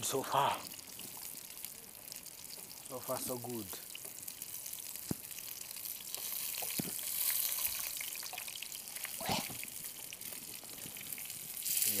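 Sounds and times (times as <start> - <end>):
fish sizzling in oil: 0.0 - 12.0.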